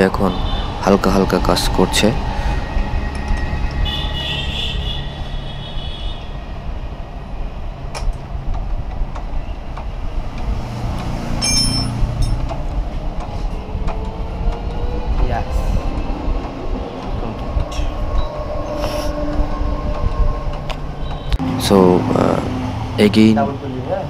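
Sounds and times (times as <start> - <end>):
metallic clinks of hand tools: 11.4 - 12.5.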